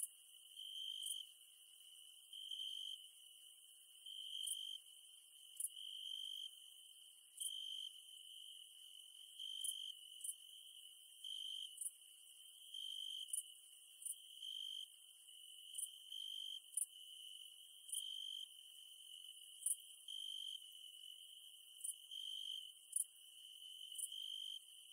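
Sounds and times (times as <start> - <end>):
insect trill: 4.0 - 4.8, 5.5 - 6.6, 7.4 - 24.9.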